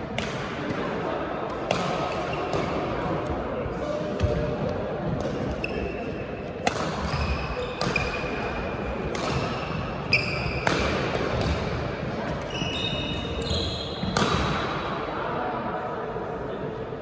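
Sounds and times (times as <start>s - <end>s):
chatter in a hall: 0.0s - 17.0s
shoes squeaking on court floor: 5.4s - 6.3s, 7.1s - 8.5s, 9.3s - 10.7s, 12.3s - 14.2s
racket striking shuttlecock: 6.6s - 8.3s, 9.0s - 9.7s, 10.4s - 11.9s, 14.0s - 14.6s.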